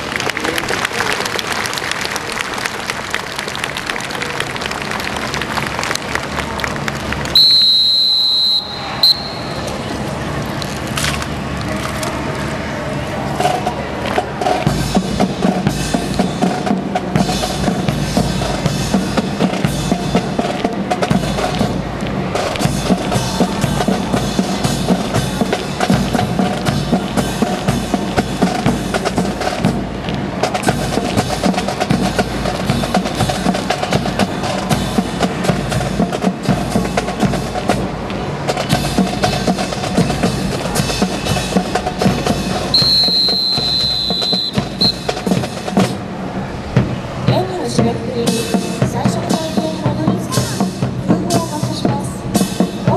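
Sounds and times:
high steady tone: 0:07.4 - 0:09.8
marching drum music: 0:13.3 - 0:52.9.

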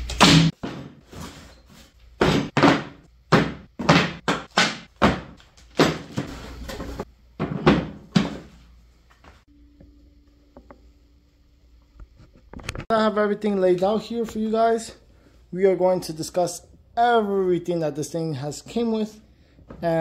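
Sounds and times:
objects knocking on wooden workbench: 0:07.4 - 0:08.6.

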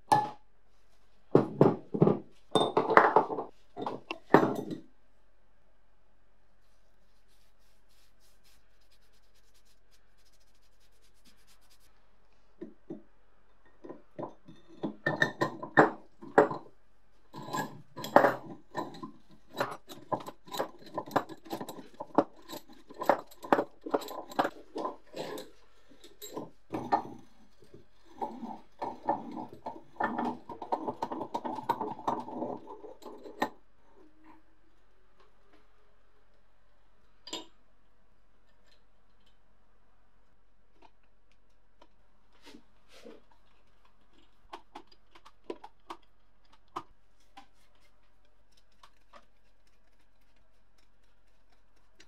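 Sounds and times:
metal knocks clinks and rubbing: 0:17.3 - 0:33.6.

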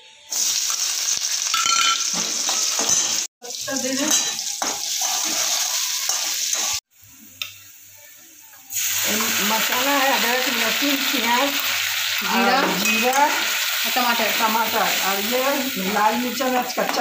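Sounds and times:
oil sizzling in a pan: 0:00.3 - 0:17.0
spatula clinking against pan: 0:04.1 - 0:04.9.

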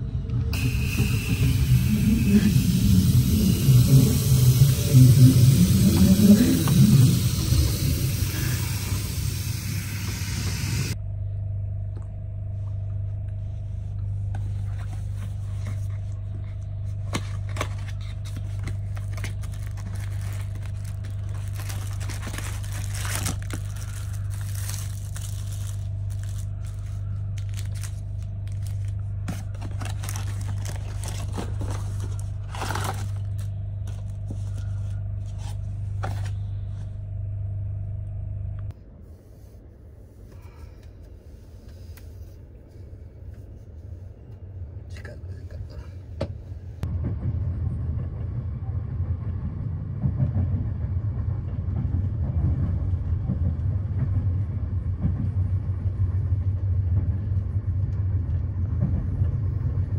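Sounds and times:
steady low hum: 0:00.0 - 0:59.9
cardboard box rustling: 0:17.1 - 0:34.5
plastic wrappers crinkling: 0:17.3 - 0:35.6.

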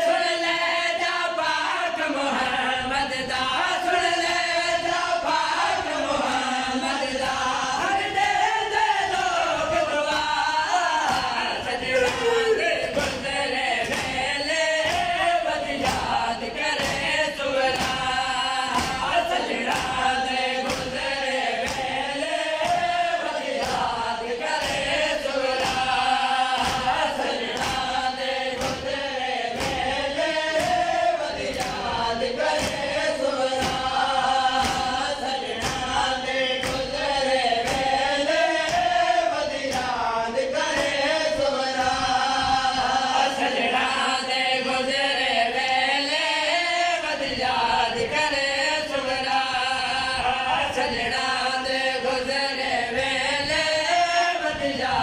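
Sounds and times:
men chanting in unison: 0:00.0 - 0:55.0
hands beating on chests: 0:26.6 - 0:31.9.

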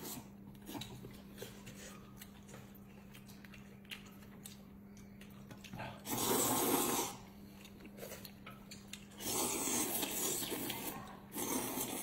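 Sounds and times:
soft chewing: 0:00.0 - 0:12.0
slurping noodles: 0:06.0 - 0:07.2, 0:09.1 - 0:12.0.

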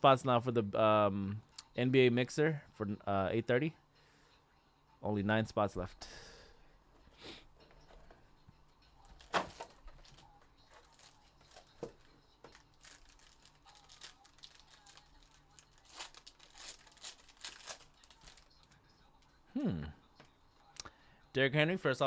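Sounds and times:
wrapping rustling and crinkling: 0:09.0 - 0:19.4.

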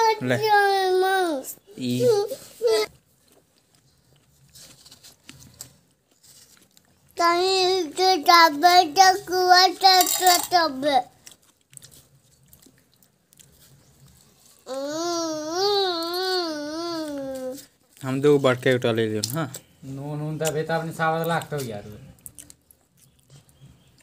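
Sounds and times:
child wailing: 0:14.7 - 0:17.6.

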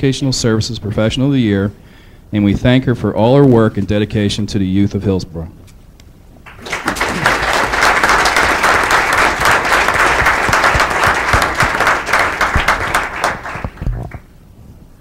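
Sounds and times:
audience applauding: 0:06.5 - 0:14.3.

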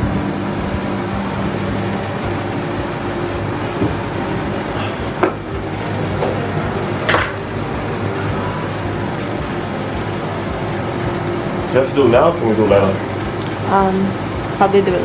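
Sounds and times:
air cooler fan whirring: 0:00.0 - 0:15.0
knocks on bedside table: 0:05.2 - 0:05.4.

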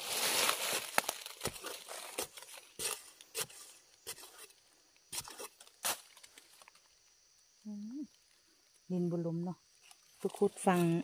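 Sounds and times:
spade digging into hard soil: 0:00.0 - 0:06.3.

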